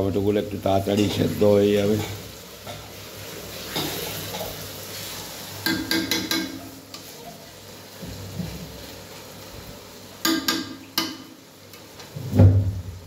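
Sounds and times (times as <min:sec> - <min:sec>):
food sizzling in a pan: 0:00.0 - 0:13.0
spatula clinking on metal pan: 0:05.6 - 0:06.7, 0:10.2 - 0:11.3.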